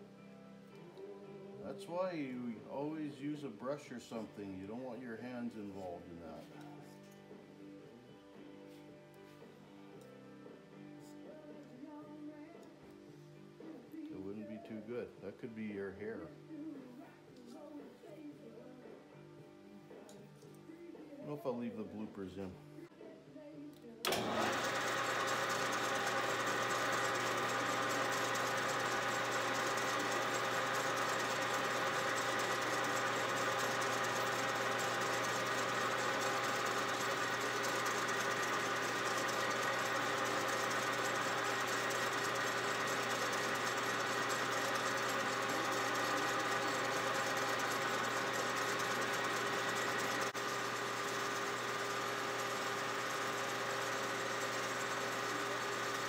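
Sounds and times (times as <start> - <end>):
metal lathe running: 24.1 - 56.0.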